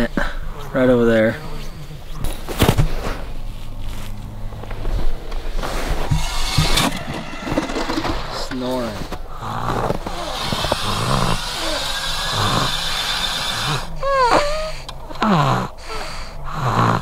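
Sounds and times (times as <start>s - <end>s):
steady rushing noise: 4.5s - 11.4s
toddler snoring: 9.3s - 17.0s.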